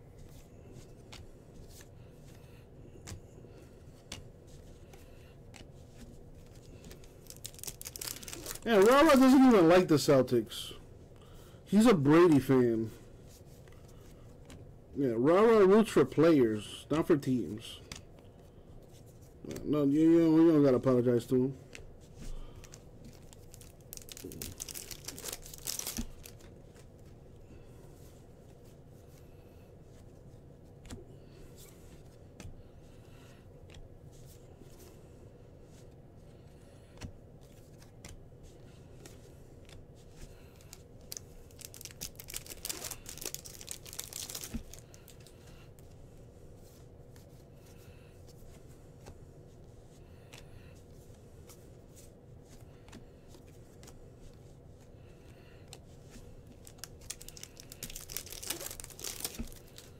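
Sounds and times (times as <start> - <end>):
wrappers tearing and crinkling: 6.8 - 9.6, 23.0 - 26.5, 40.6 - 45.3, 56.5 - 59.9.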